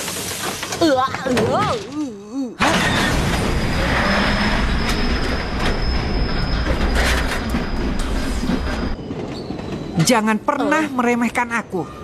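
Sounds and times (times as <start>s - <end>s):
train wheels rumbling on track: 3.4s - 12.0s.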